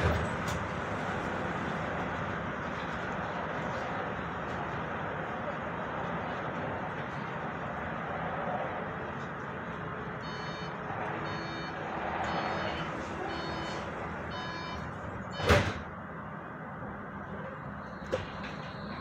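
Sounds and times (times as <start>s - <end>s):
steady tram hum: 0.0s - 19.0s
door warning beeps: 10.2s - 15.8s, 17.9s - 19.0s
doors shutting with thud: 15.3s - 15.9s.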